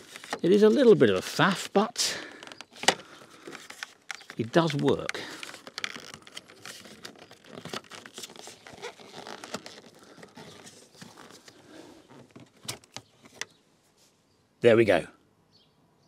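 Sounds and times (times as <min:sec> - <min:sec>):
plastic trim scraping and clicking: 0:00.0 - 0:01.4, 0:02.2 - 0:13.6.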